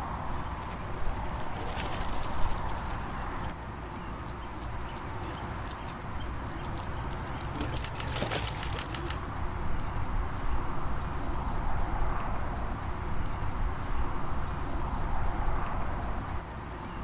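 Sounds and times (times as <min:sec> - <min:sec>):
metal dog tags jingling: 0:00.0 - 0:09.6, 0:16.2 - 0:17.0.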